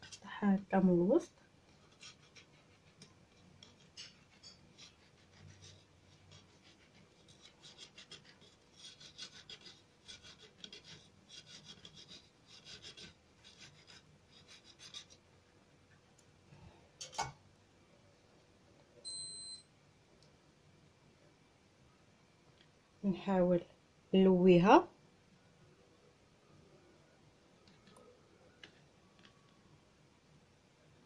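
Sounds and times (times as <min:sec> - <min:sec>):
knife blade scraping on plate: 0:03.6 - 0:05.5
knife sawing through pineapple: 0:03.6 - 0:15.2.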